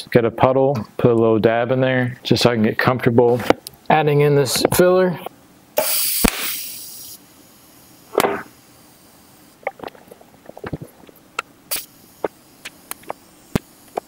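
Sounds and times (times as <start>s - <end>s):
welding torch hiss: 5.8s - 9.7s, 11.7s - 14.0s
welding ticks and crackles: 10.6s - 14.0s.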